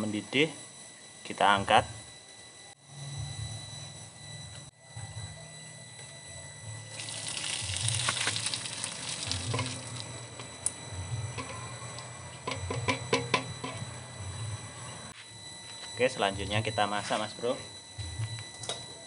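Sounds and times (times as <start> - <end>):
water trickling: 6.9 - 10.1
snail shells clattering into basket: 7.0 - 10.1
water splashing onto concrete: 7.0 - 10.1.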